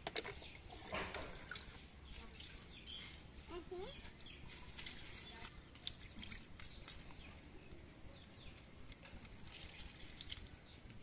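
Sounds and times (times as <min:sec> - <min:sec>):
faint bird chirps: 0:02.0 - 0:08.7.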